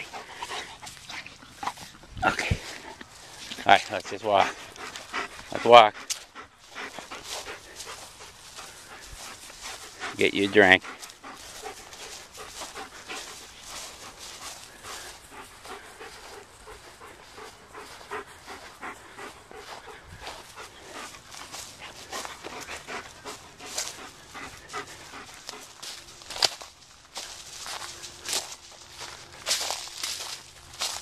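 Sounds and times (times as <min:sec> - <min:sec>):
dog panting: 0:00.0 - 0:31.0.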